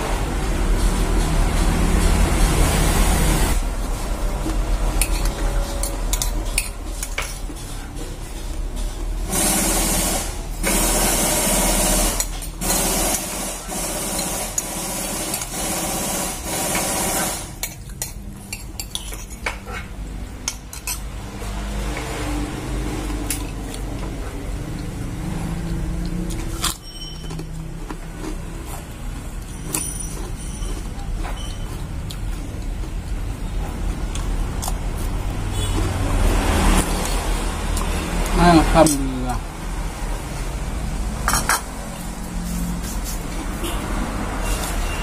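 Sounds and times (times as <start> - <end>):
metal spoon scraping a plate: 4.9 - 8.1, 17.5 - 21.1
loud rushing hiss: 9.3 - 17.5.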